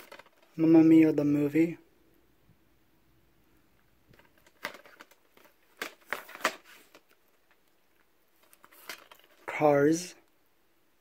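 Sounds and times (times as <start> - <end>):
plastic cases clicking and scraping: 0.0 - 0.6, 4.1 - 7.6, 8.4 - 9.5.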